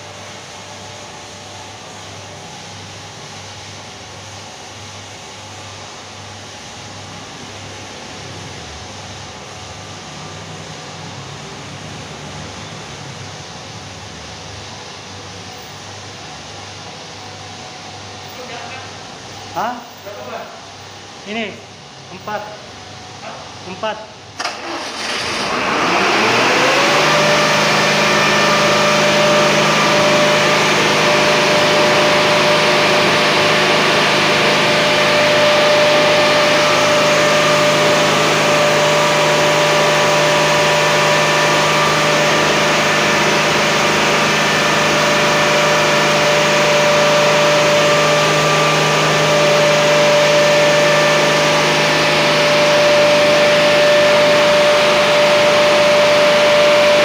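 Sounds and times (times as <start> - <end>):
diesel engine running loudly: 0.0 - 5.3, 24.4 - 57.0
steady high whine: 0.0 - 57.0.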